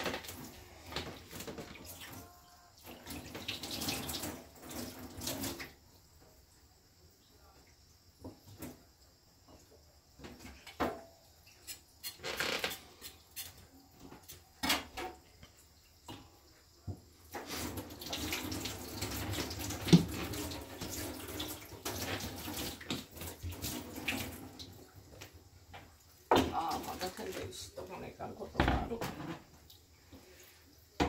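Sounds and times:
tap water running into sink: 0.0 - 5.9, 14.7 - 31.0.

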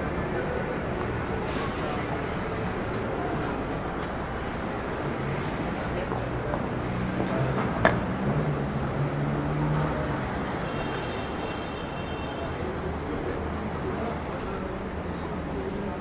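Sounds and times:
vehicle engines running: 0.0 - 11.4.

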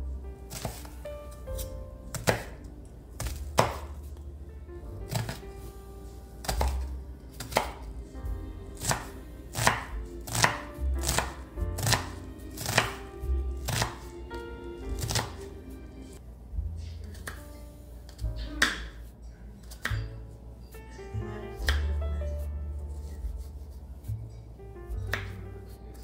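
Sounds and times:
knife chopping on wooden board: 1.6 - 2.6, 3.2 - 3.9, 6.4 - 7.9, 8.8 - 13.0, 13.6 - 14.1, 15.0 - 15.4.

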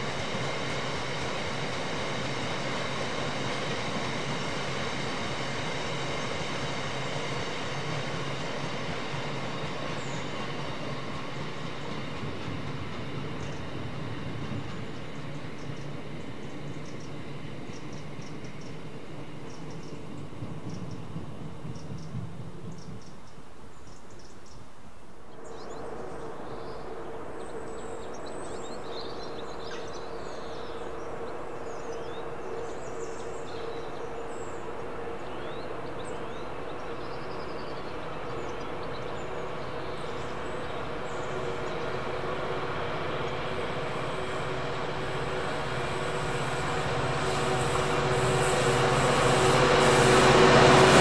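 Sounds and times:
birds chirping: 0.0 - 24.7, 25.3 - 51.0
train approaching hum: 0.0 - 51.0.

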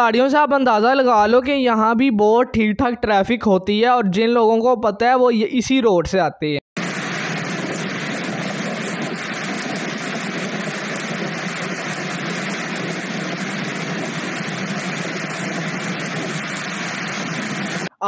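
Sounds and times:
car tyre noise on wet road: 6.8 - 17.9.

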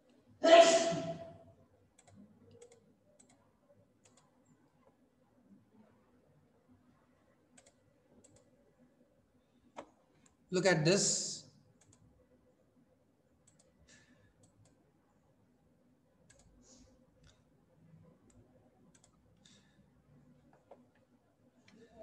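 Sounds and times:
computer mouse clicks: 2.0 - 5.0, 7.5 - 8.6, 11.8 - 12.1, 13.4 - 14.8, 16.2 - 16.6, 18.2 - 19.6, 20.4 - 21.8.

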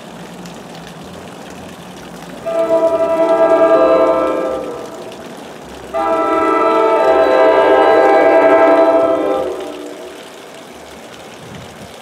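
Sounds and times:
train horn chord: 2.4 - 10.3.

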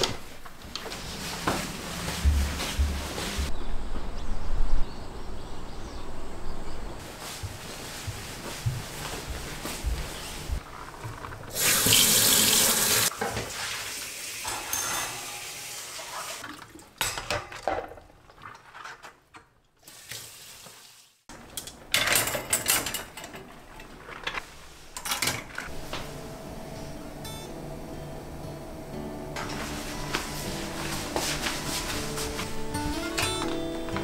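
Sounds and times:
dishes clattering in dish rack: 14.4 - 15.6, 17.0 - 18.1, 21.5 - 23.6
metal utensils clinking: 14.4 - 15.8, 21.4 - 24.4.

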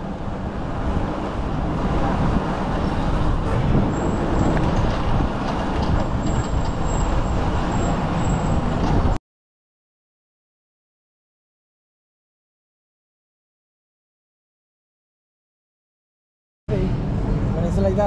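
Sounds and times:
scooter road rumble: 0.0 - 9.2
wind buffeting microphone: 0.0 - 9.2.

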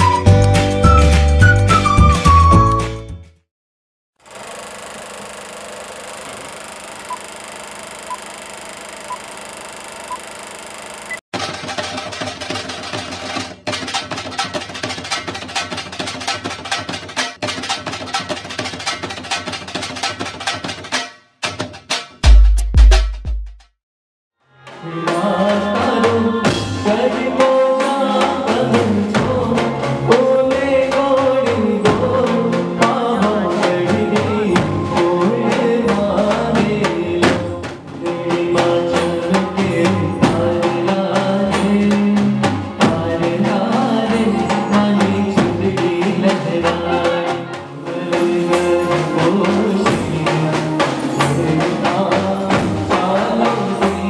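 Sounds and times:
drums and percussion: 4.3 - 23.7, 24.7 - 54.0
person singing: 24.7 - 54.0.

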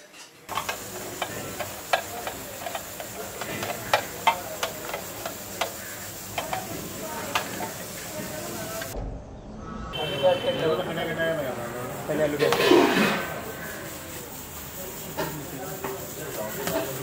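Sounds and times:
hands mashing food on metal plate: 0.5 - 7.8.

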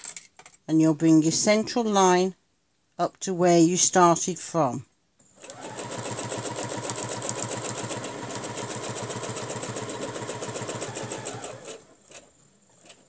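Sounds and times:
sewing machine stitching: 5.2 - 13.0.

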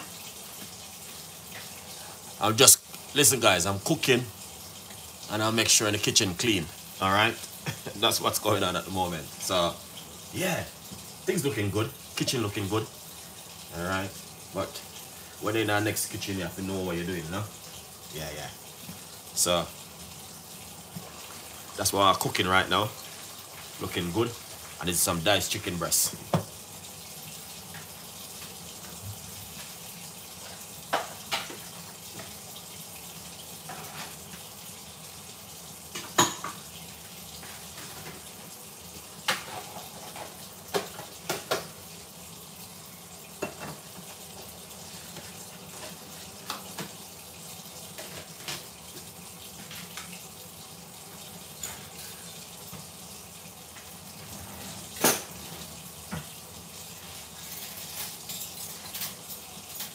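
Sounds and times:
cookware clinking: 35.9 - 36.6.

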